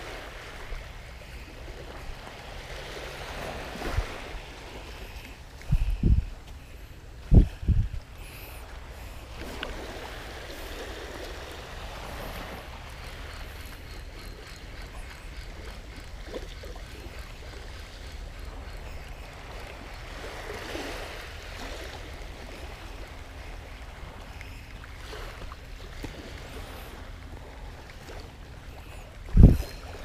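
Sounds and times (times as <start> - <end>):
small waves washing on beach: 0.0 - 30.0
wind: 0.0 - 30.0.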